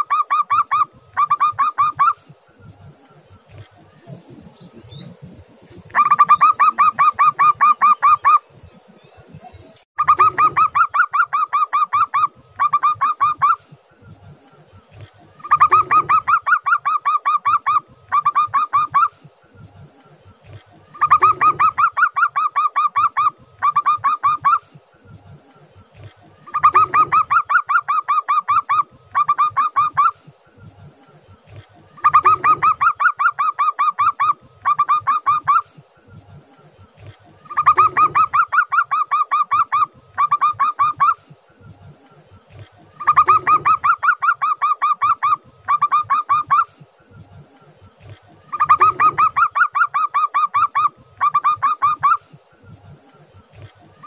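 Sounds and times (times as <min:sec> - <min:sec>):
dove cooing: 0:00.0 - 0:02.4, 0:03.2 - 0:08.5, 0:10.0 - 0:13.9, 0:14.8 - 0:19.4, 0:20.4 - 0:24.9, 0:26.0 - 0:30.4, 0:31.5 - 0:35.8, 0:37.0 - 0:41.4, 0:42.5 - 0:46.8, 0:48.0 - 0:52.4.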